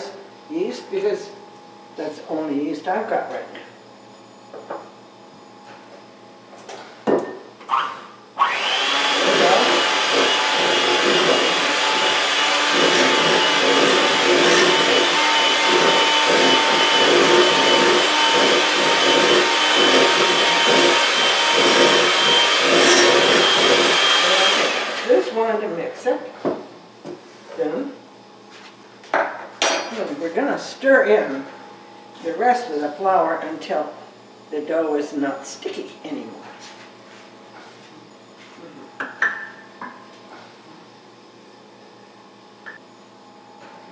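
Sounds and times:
electric hand mixer whining: 8.4 - 25.5.

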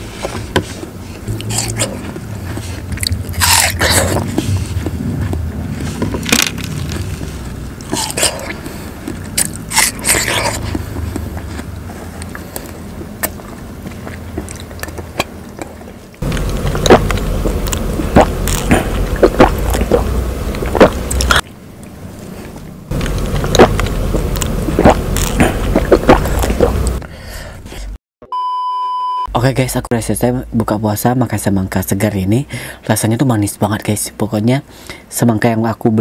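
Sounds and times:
chewing and wet smacks: 1.4 - 27.0.

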